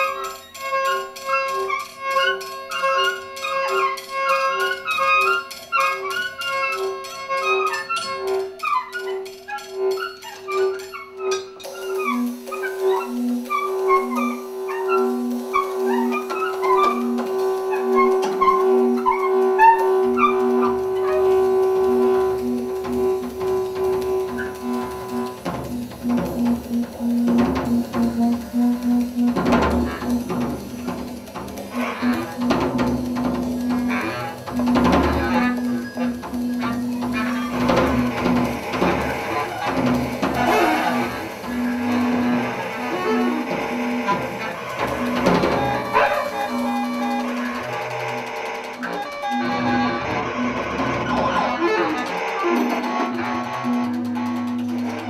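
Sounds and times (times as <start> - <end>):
clattering percussion and drums: 0.0 - 55.0
two pulsing tones: 11.6 - 50.1.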